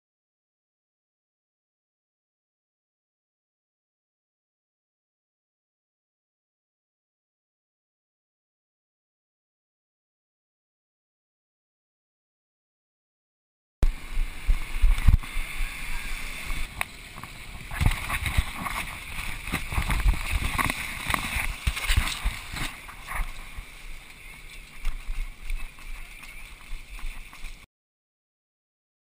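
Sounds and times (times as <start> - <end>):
splashing through muddy water: 15.1 - 27.6.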